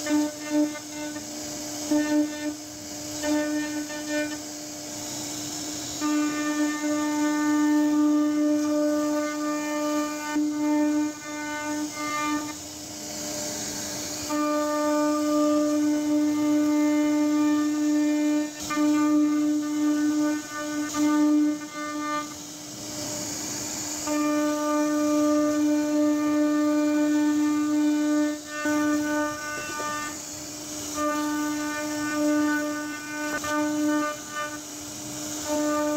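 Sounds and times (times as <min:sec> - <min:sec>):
router spindle whine: 0:00.0 - 0:35.9.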